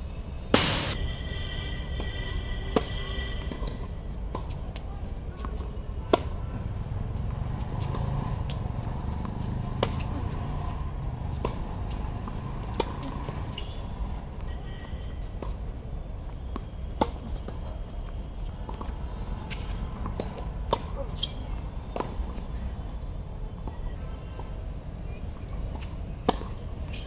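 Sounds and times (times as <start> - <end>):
high-pitched whine: 0.0 - 3.8
racket striking tennis ball: 0.5 - 1.0, 5.4 - 6.4, 7.6 - 13.9.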